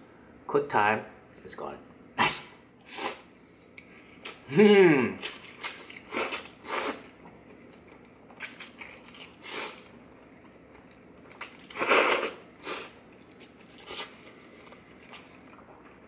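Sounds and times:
slurping noodles: 0:05.6 - 0:07.1, 0:11.7 - 0:13.0
chewing: 0:13.1 - 0:16.0.

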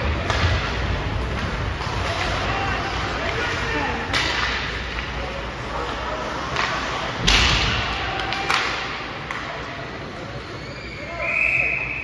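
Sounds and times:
puck and stick knocks: 0:00.0 - 0:02.3, 0:04.1 - 0:05.2, 0:06.5 - 0:09.5.

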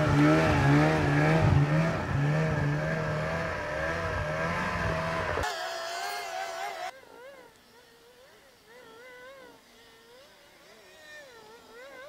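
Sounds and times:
snowmobile engine running: 0:00.0 - 0:05.5
thin engine whine: 0:00.0 - 0:06.9.

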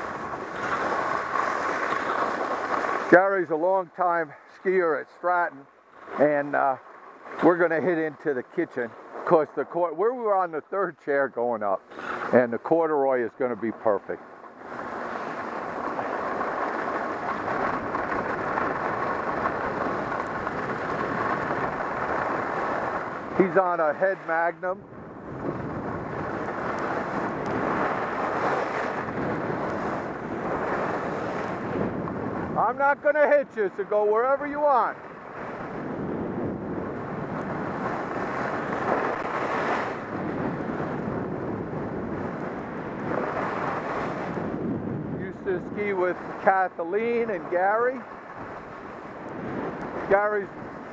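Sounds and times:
skis running on snow: 0:00.0 - 0:03.7, 0:14.7 - 0:24.5, 0:25.3 - 0:34.0, 0:34.6 - 0:41.5, 0:42.1 - 0:44.5, 0:45.8 - 0:50.9
wind over camera: 0:00.0 - 0:50.9
skis hissing on snow: 0:00.6 - 0:03.1.

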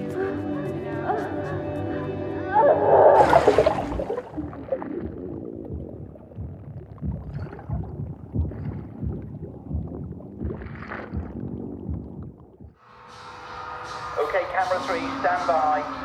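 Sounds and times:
low wet rumbling: 0:02.6 - 0:12.8.

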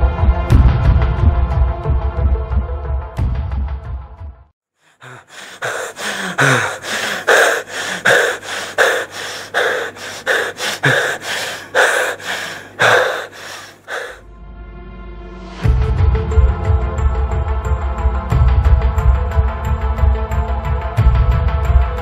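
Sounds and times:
person panting hard: 0:04.8 - 0:14.2.

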